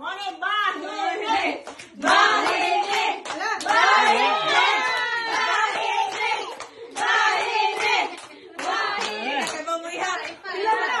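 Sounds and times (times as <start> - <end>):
people talking and exclaiming: 3.4 - 11.0.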